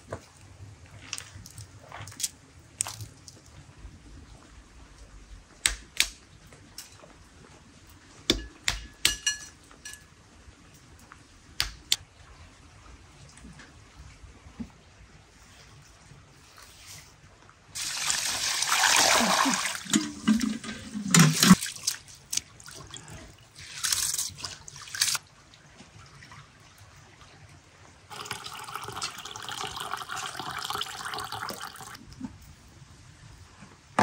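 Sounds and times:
water pouring into basin: 0:17.8 - 0:22.0, 0:28.1 - 0:32.0
rinse water pouring off: 0:17.8 - 0:22.1.

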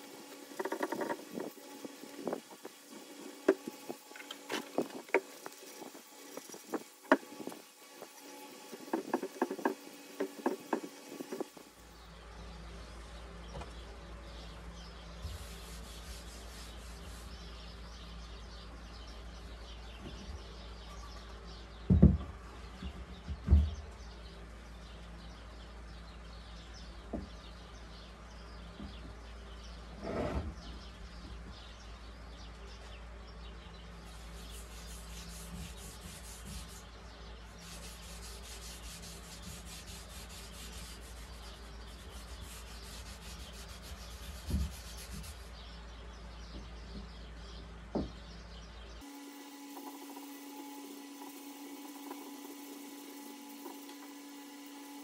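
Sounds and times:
wood rubbing on cutting board: 0:00.5 - 0:11.7, 0:15.3 - 0:17.4, 0:34.3 - 0:36.9, 0:37.6 - 0:45.5
sharp knocks on wood: 0:08.9 - 0:11.5, 0:21.9 - 0:23.8, 0:47.9 - 0:48.2.

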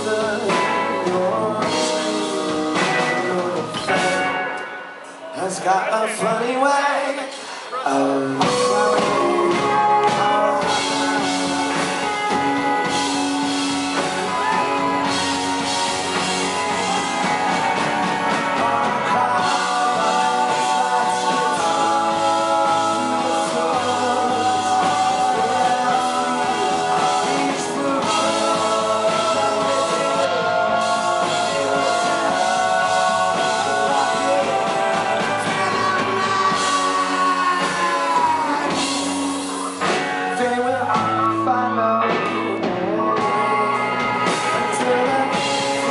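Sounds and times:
drum kit: 0:00.0 - 0:05.0, 0:08.0 - 0:45.9
bass guitar: 0:00.0 - 0:06.0, 0:07.9 - 0:45.9
electric guitars: 0:00.0 - 0:06.4, 0:07.4 - 0:45.9
man singing lead vocal: 0:00.0 - 0:45.9.

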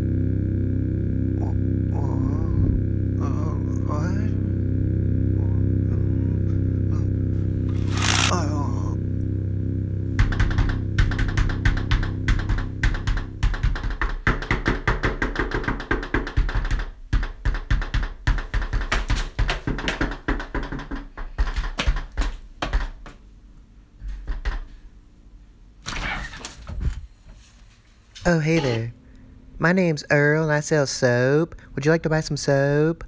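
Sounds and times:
low music drone: 0:00.0 - 0:13.4
rapid clicks and knocks: 0:10.2 - 0:23.2.

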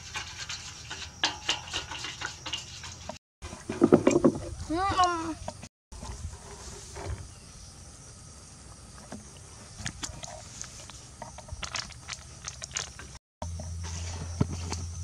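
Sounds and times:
faint high insect hiss: 0:06.7 - 0:11.2.

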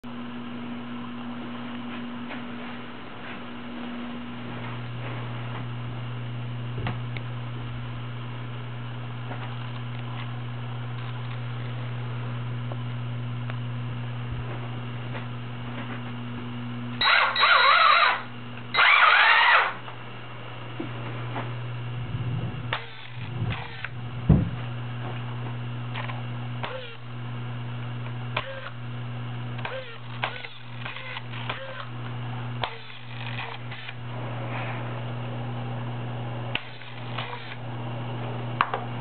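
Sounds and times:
steady low hum: 0:00.0 - 0:39.0
electric motor whirring: 0:17.0 - 0:19.8, 0:22.5 - 0:24.0, 0:25.9 - 0:27.1, 0:28.3 - 0:28.8, 0:29.6 - 0:34.2, 0:36.5 - 0:37.6.

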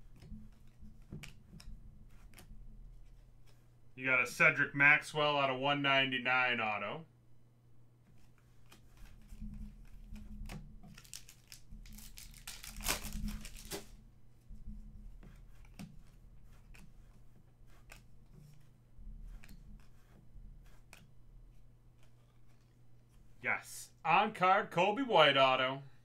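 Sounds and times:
cards shuffling rustle: 0:08.1 - 0:14.0, 0:15.3 - 0:23.4
card edges clicking: 0:10.9 - 0:13.9.

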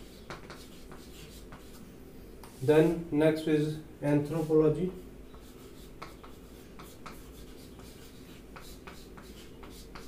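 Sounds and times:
chalk scratching on chalkboard: 0:00.0 - 0:01.8, 0:04.3 - 0:10.0.

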